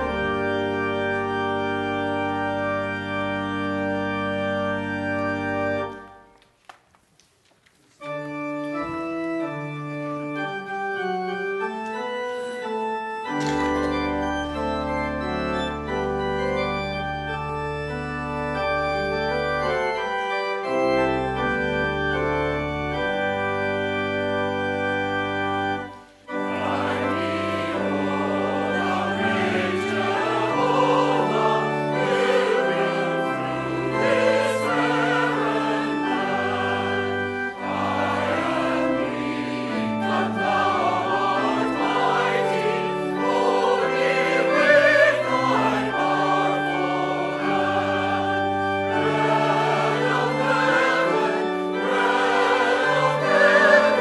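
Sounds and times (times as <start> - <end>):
choir singing: 0.0 - 0.4, 26.3 - 54.0
church organ chords: 0.0 - 6.4, 8.0 - 54.0.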